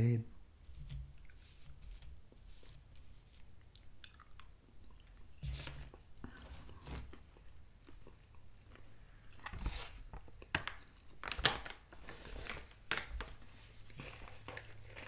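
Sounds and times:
quiet chewing: 0.7s - 9.5s, 13.9s - 15.0s
plastic bag crinkling: 9.4s - 15.0s.

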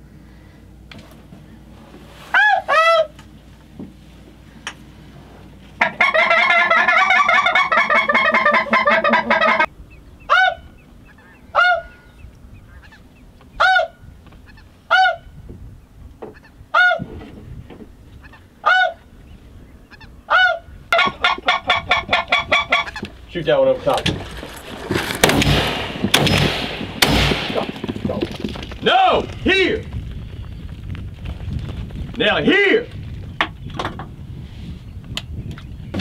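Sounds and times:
goose honking: 2.3s - 3.2s, 5.8s - 12.1s, 13.6s - 15.3s, 16.3s - 17.1s, 18.2s - 19.0s, 19.9s - 23.1s.

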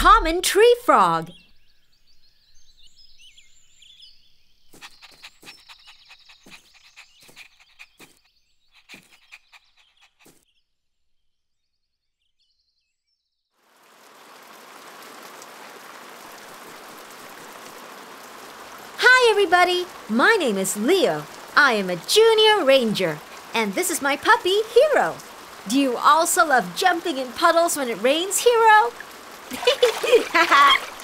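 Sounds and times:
steady rain: 13.6s - 31.0s.

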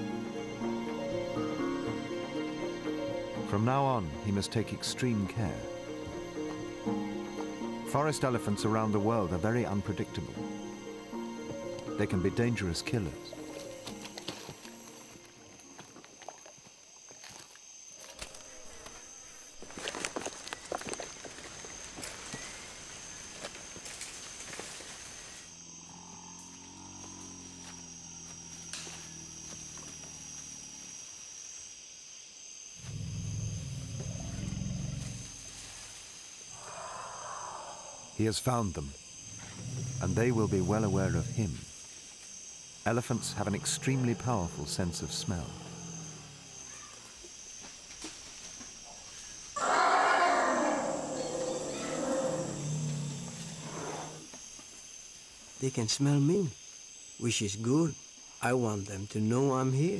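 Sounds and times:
high insect drone: 0.0s - 59.9s
elephants rumbling: 32.8s - 35.7s, 39.2s - 41.7s, 42.9s - 47.2s, 49.6s - 54.3s
elephant calling: 49.6s - 54.3s.

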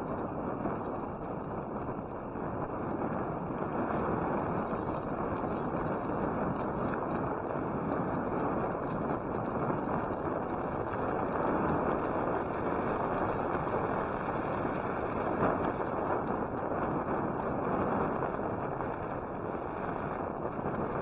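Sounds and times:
bicycle tyres rolling on asphalt: 0.0s - 21.0s
wind on microphone: 0.0s - 21.0s.

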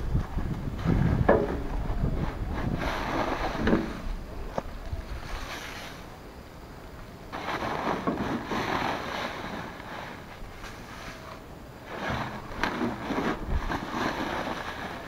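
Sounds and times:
contents pouring into wheelbarrow: 7.4s - 15.0s.

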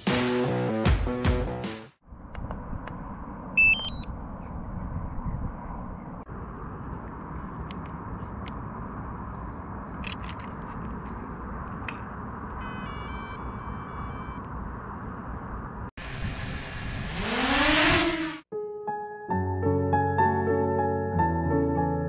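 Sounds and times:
wind buffeting microphone: 4.1s - 7.4s.

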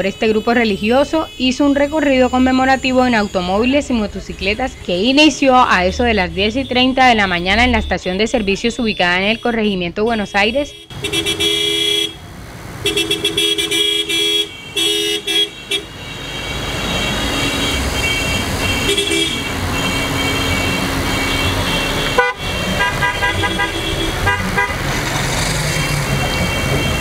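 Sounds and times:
car horns honking: 0.0s - 27.0s
cars driving past: 10.8s - 27.0s
motorcycle driving past: 16.3s - 27.0s.

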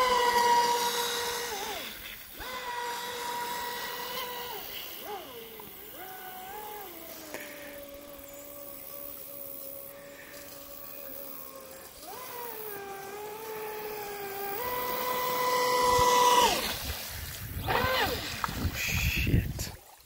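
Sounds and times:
toy boat electric motor whining: 0.0s - 19.1s.

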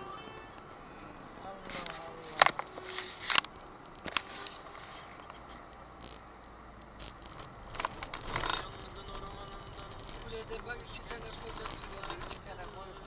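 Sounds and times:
low road noise: 0.0s - 13.0s
rustling and bumping: 6.9s - 13.0s.

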